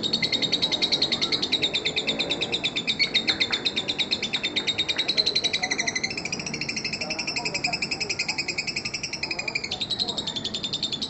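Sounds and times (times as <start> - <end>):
lovebird fast chatter: 0.0 - 11.0.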